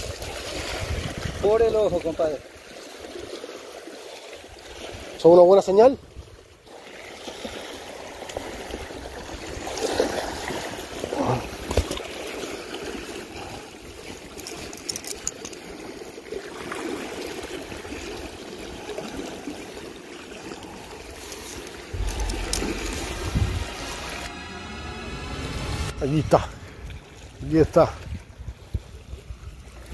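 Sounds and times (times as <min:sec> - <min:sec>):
water flowing at shore: 0:00.0 - 0:29.9
handling sounds: 0:14.2 - 0:15.7
low rumble: 0:21.9 - 0:29.0.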